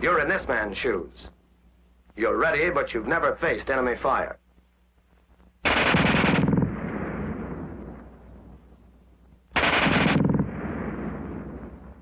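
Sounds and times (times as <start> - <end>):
machine gun burst: 5.6 - 6.8, 9.6 - 10.5
gunfire echo: 5.6 - 8.2, 9.5 - 12.0.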